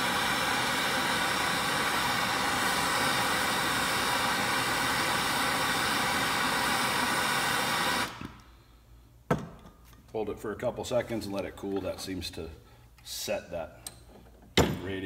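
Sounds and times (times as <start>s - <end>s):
gas torch flame hissing: 0.0s - 8.5s.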